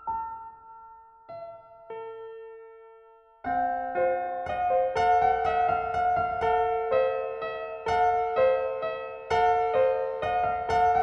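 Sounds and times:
slow solo piano: 0.0 - 11.0.

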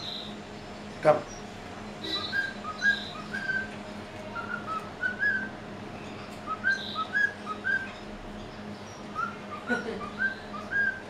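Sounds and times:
high bird chirps: 1.3 - 3.7, 4.4 - 11.0
cockatiel whistling a tune: 2.1 - 3.7, 4.4 - 5.5, 6.5 - 7.9, 9.1 - 11.0.

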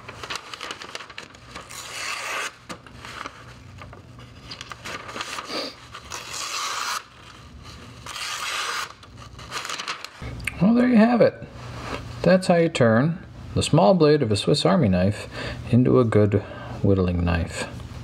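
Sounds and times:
knife slicing paper: 0.0 - 3.9, 4.6 - 10.2.

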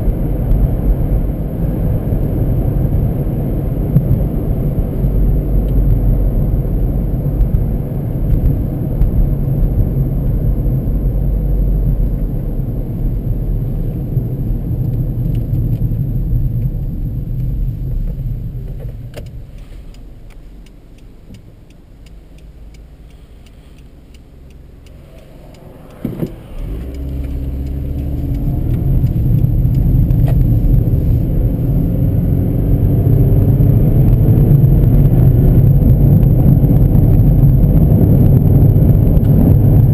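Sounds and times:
car engine and tyre noise: 0.0 - 39.9
engine accelerating: 20.6 - 39.9.

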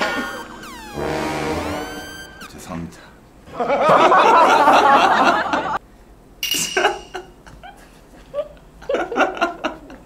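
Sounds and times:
loud dense sound: 0.0 - 2.9.

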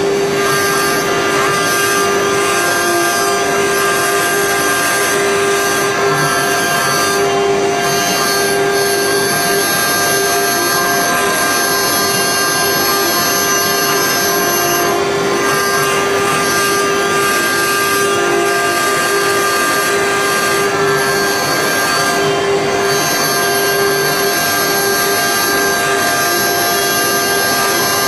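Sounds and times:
rough metal cutting noise: 0.0 - 28.0
router spindle whining: 0.0 - 28.0.

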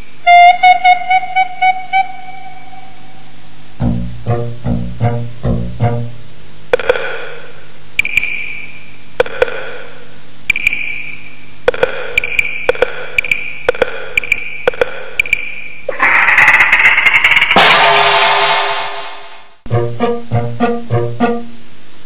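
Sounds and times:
sharp struck percussion notes: 15.9 - 19.6.

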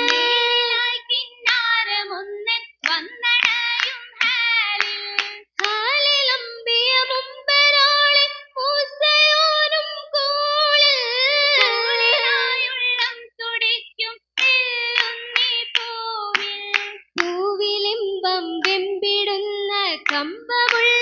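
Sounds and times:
girls singing in chorus: 0.0 - 1.6, 2.8 - 13.3
rhythmic hand claps: 0.0 - 6.5, 11.3 - 13.2, 14.4 - 17.7, 18.4 - 21.0.

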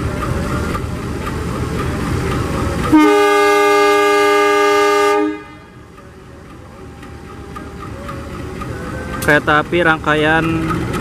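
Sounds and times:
diesel engine running: 0.0 - 11.0
locomotive horn blast: 2.9 - 5.8.

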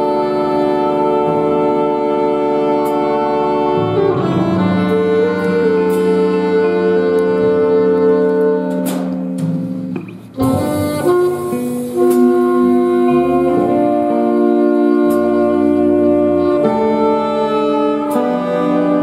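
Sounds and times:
alto saxophone solo: 0.0 - 19.0
jazz big band playing: 0.0 - 19.0.

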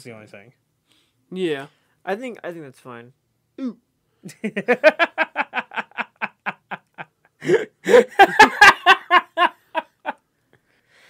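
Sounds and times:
people laughing: 4.3 - 10.1.

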